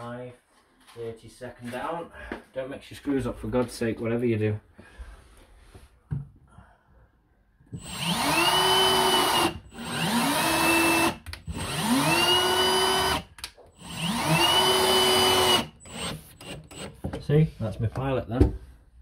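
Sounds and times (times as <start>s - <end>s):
power drill drilling: 7.8s - 17.0s.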